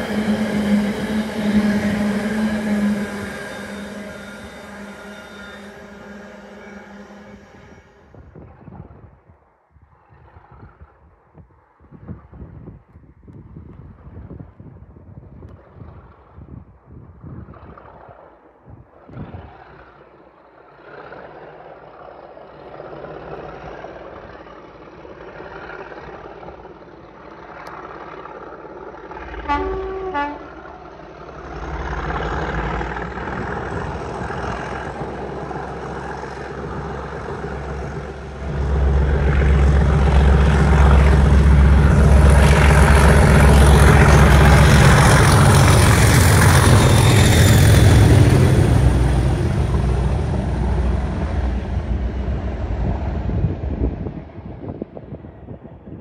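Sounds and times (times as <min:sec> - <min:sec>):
two-note train horn: 0:00.0 - 0:08.4, 0:29.2 - 0:52.9
diesel locomotives working hard: 0:00.0 - 0:08.6, 0:19.4 - 0:56.0.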